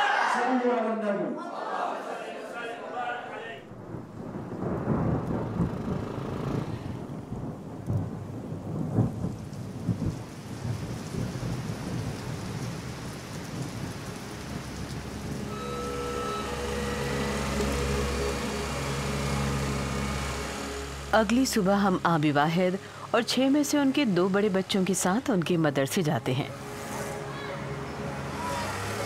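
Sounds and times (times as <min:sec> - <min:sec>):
thunder rumbling: 0:03.6 - 0:24.0
rain: 0:03.6 - 0:29.0.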